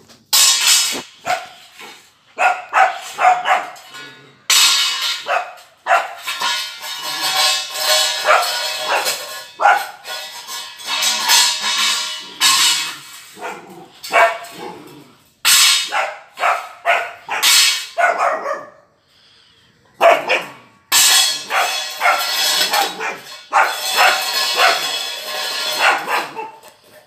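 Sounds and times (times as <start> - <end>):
puppy barking: 1.2 - 1.6, 2.4 - 3.9, 5.2 - 6.2, 8.2 - 10.0, 13.4 - 14.6, 15.9 - 18.9, 20.0 - 20.7, 21.5 - 24.9, 25.8 - 26.7.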